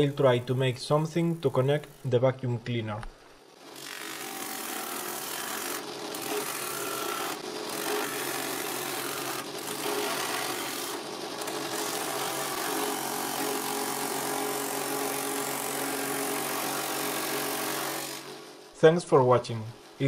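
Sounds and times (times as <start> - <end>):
drill press motor hum: 3.6 - 18.6.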